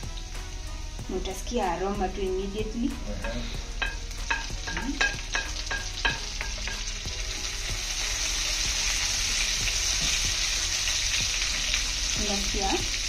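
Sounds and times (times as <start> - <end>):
frying sizzle: 0.0 - 13.0
wooden spoon knocking on pan: 3.8 - 6.9.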